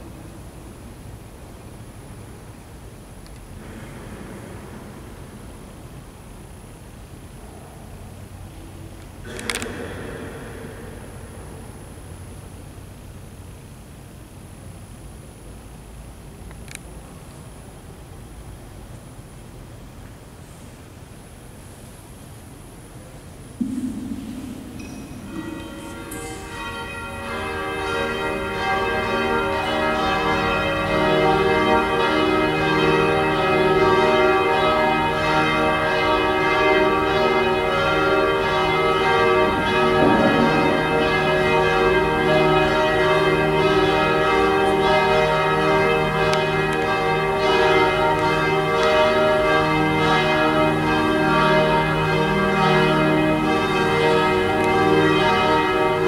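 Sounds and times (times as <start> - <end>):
church bells pealing: 8.1 - 13.3, 23.6 - 56.0.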